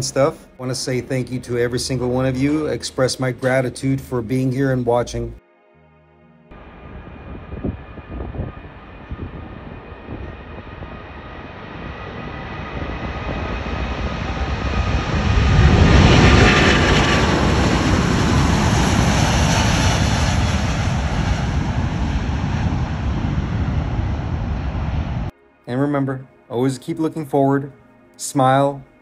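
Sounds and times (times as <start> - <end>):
jet engines rumbling and whining: 6.5 - 25.3.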